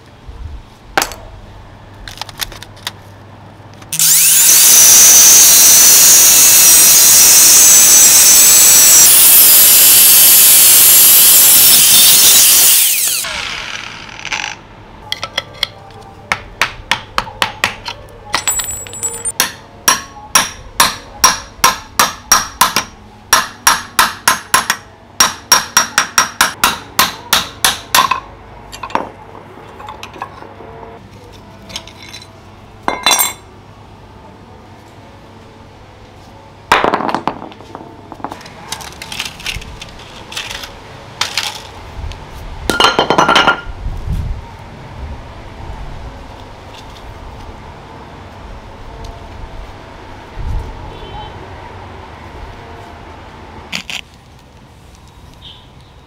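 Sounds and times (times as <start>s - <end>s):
power tool running: 3.9s - 14.6s.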